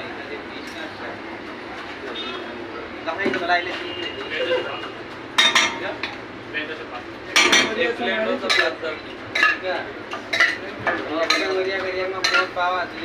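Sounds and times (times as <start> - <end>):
steel spoon clanking on pots: 5.4 - 6.2, 7.3 - 10.6, 11.2 - 12.6.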